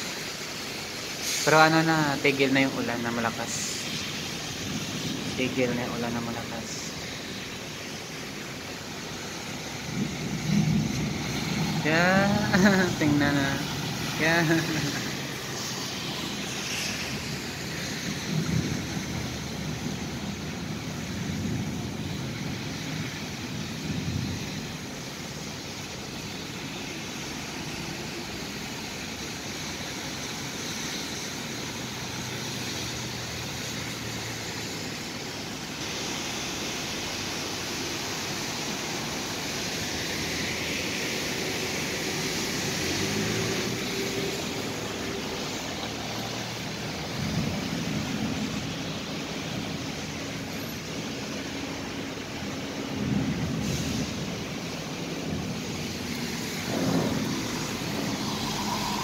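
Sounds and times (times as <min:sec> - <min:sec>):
tyres hissing through water: 0:00.0 - 0:59.0
car engines passing: 0:37.0 - 0:59.0.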